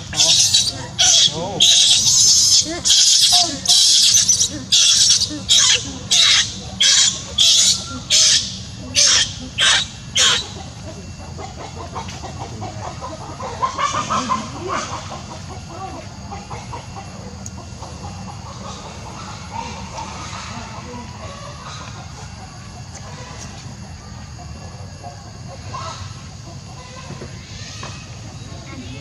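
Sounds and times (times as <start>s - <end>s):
animal shrill calls: 0.0s - 10.6s
soft animal chatter: 0.0s - 29.0s.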